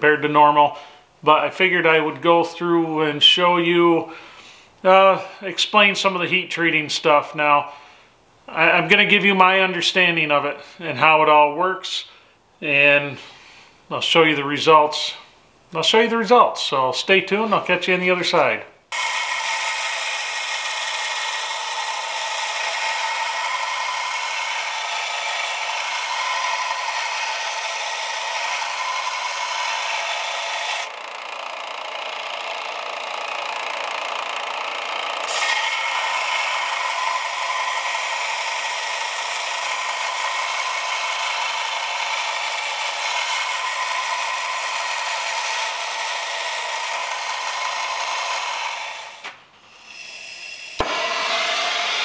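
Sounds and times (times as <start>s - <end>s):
belt sander grinding steel blade: 18.9s - 52.0s.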